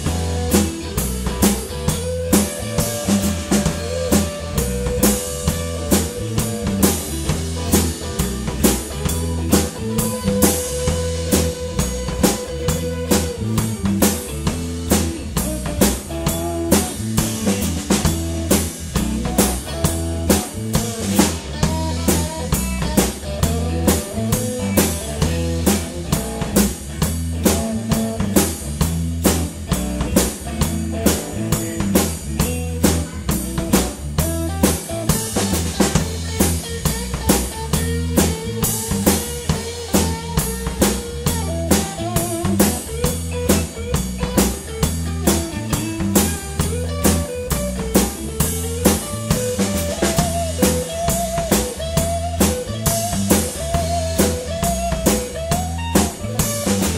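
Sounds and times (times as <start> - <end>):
blues-rock band playing: 0.0 - 56.9
blues harmonica wailing: 0.1 - 18.4, 32.5 - 56.9.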